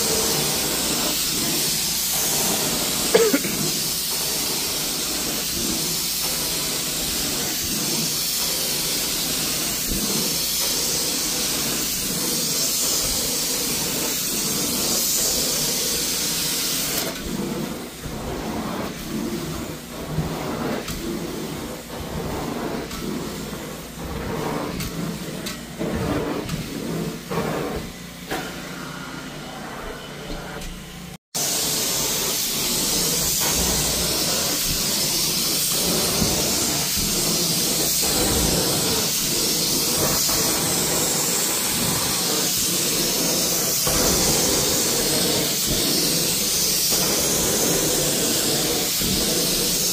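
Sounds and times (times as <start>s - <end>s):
carpet extraction wand hissing: 0.0s - 29.1s, 31.3s - 49.9s.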